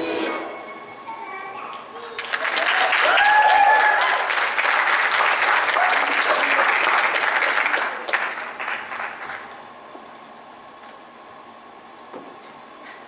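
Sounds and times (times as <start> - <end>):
audience applauding: 2.0 - 9.5.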